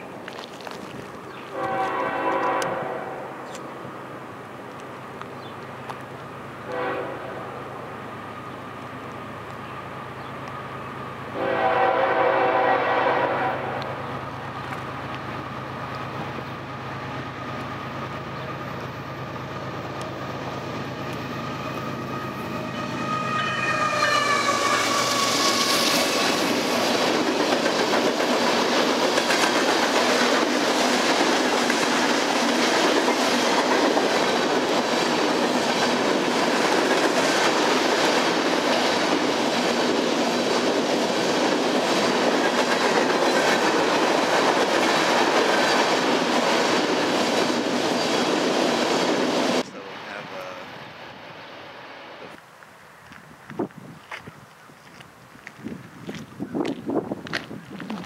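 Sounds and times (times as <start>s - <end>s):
locomotive engine humming: 0.0s - 53.2s
locomotive horn blast: 1.5s - 3.4s, 6.7s - 7.6s, 11.3s - 14.0s, 22.2s - 26.3s.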